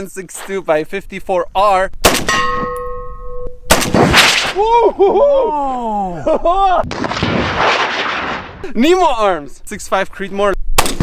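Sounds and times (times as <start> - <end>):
rifle shot: 2.0 - 2.6, 3.7 - 4.6, 6.8 - 8.6, 10.8 - 11.0
metallic ring of tank: 2.3 - 3.6
tank bursting into flame: 3.7 - 4.6, 6.8 - 8.7
whooping tones: 4.5 - 6.8.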